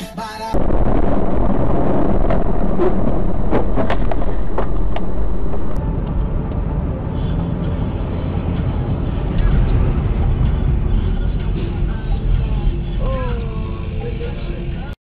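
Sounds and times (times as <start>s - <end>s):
vehicle road rumble: 0.6s - 14.9s
sharp knocks: 2.2s - 5.8s.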